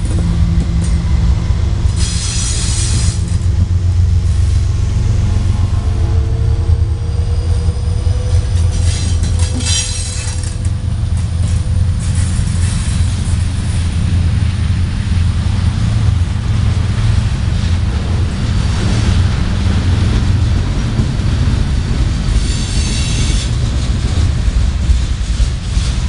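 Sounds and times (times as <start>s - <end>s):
train wheels rumbling on rail: 0.0s - 26.0s
high wheel squeal: 5.9s - 10.7s, 22.4s - 23.6s.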